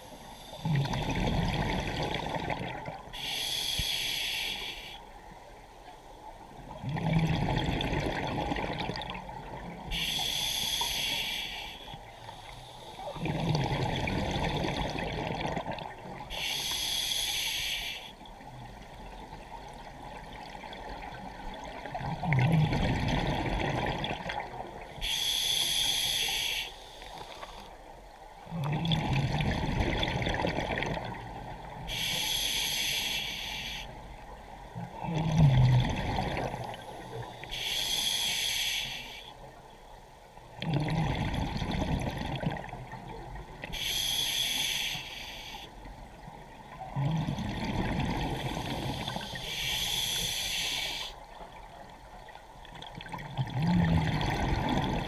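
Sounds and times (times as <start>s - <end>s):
hissing regulator inhale: 3.2s - 5.0s, 9.9s - 13.1s, 16.3s - 18.2s, 25.0s - 27.7s, 31.9s - 34.0s, 36.9s - 39.4s, 43.7s - 45.8s, 48.3s - 51.2s
exhaled bubbles rushing: 52.9s - 55.0s.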